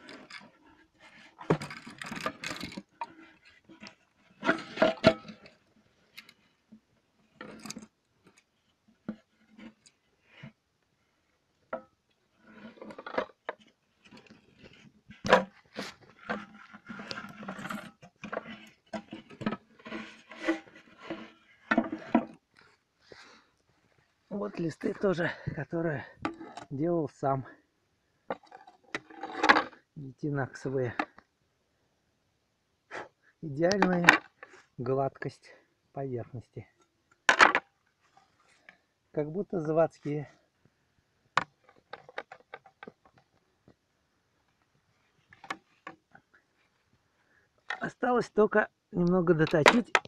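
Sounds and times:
scraping and rubbing of shells: 0.0s - 6.4s, 12.4s - 22.3s.

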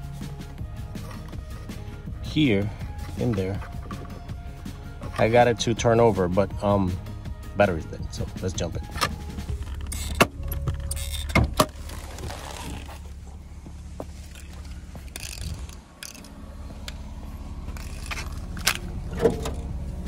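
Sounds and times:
jumper cable clamps rattling: 8.9s - 13.1s, 14.2s - 19.8s
steady low hum: 9.2s - 20.0s
car hood release clicks: 17.7s - 19.8s.

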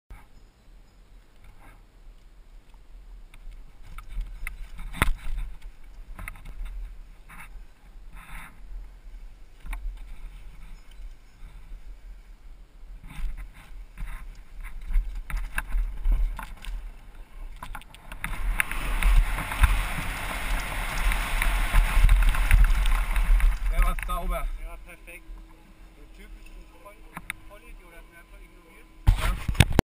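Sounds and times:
wind rumble on microphone: 1.2s - 27.6s
mountain bike rattling on dirt: 13.0s - 24.7s.

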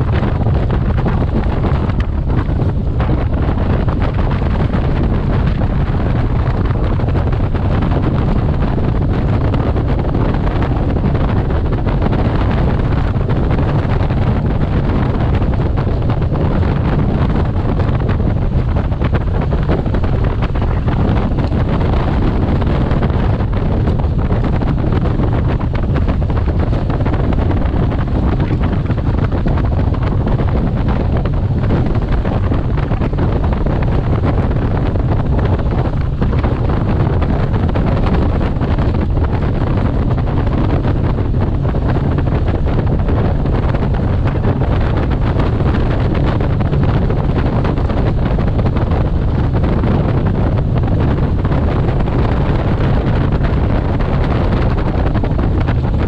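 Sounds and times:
boat engine and hull noise: 0.0s - 56.0s
wind buffeting microphone: 0.0s - 56.0s.

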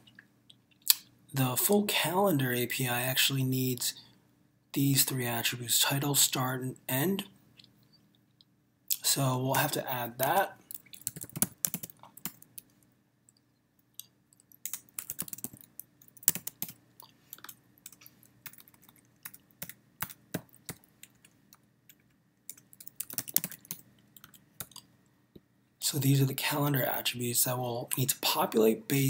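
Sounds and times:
typing on computer keyboard: 10.7s - 12.7s, 14.6s - 24.8s.

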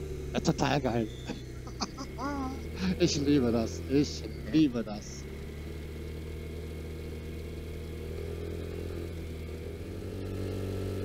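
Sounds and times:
scooter engine running: 0.0s - 11.0s.

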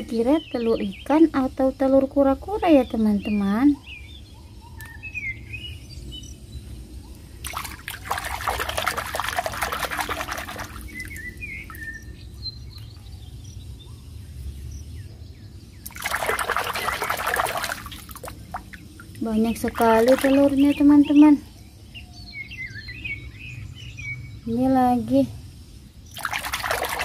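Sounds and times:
birds chirping faintly: 0.0s - 27.0s
hand splashing water in bucket: 7.4s - 11.2s, 15.8s - 18.8s, 19.7s - 20.6s, 26.1s - 27.0s.

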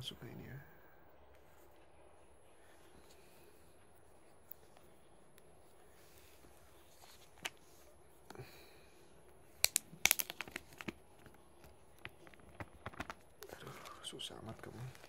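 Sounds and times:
smartphone handling clicks: 9.6s - 11.0s
plastic film crinkling: 9.6s - 15.0s.

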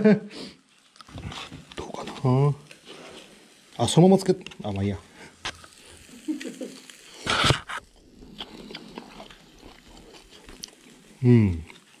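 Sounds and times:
wet mouth clicks chewing: 8.2s - 10.9s.

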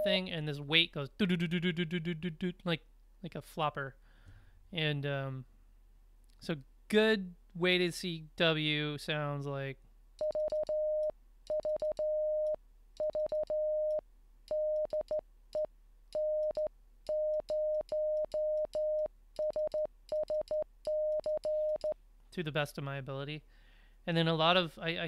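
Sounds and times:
morse code beeps: 10.2s - 22.0s.

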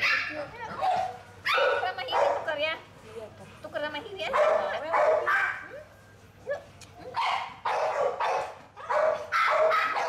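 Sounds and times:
dog barking and crying: 0.0s - 2.5s, 4.3s - 5.9s, 6.5s - 10.0s.

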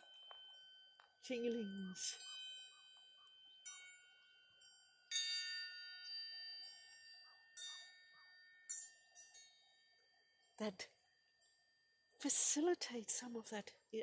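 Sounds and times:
metal bells ringing: 0.0s - 12.7s.

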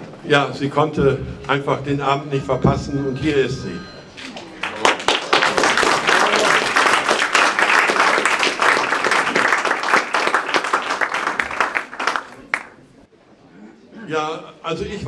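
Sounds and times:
audience applauding: 4.5s - 12.9s.

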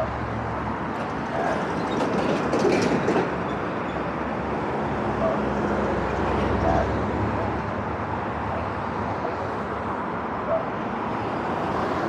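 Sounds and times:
cars driving through intersection: 0.0s - 12.0s
clicking and rattling: 0.9s - 3.5s.

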